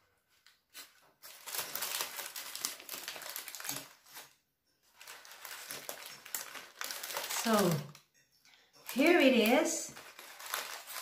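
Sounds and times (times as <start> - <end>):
paper and foil crinkling: 0.4 - 8.0, 8.8 - 11.0.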